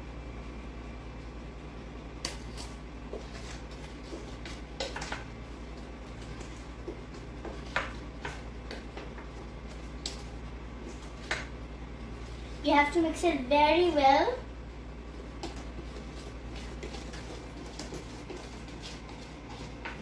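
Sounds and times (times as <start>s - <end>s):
steady low hum: 0.0s - 20.0s
wooden spoon stirring batter: 2.2s - 12.9s, 15.0s - 20.0s.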